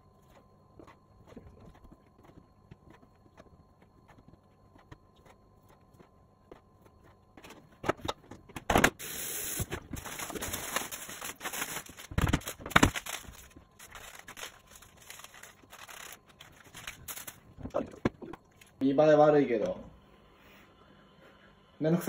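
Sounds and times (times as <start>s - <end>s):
light crinkling and ticking: 13.0s - 18.8s.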